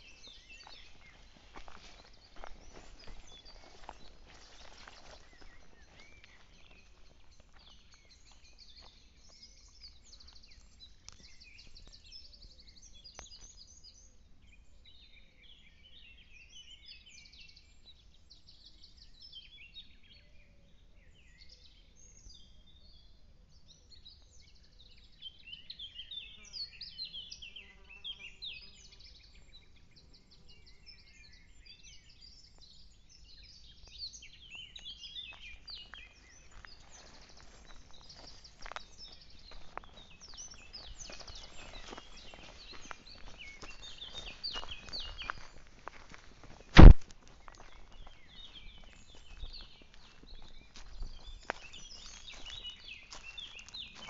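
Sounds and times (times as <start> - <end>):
footsteps on dirt path: 0.0 - 12.1, 34.7 - 54.0
small birds chirping: 0.0 - 54.0
low pitched bird call: 40.9 - 49.4.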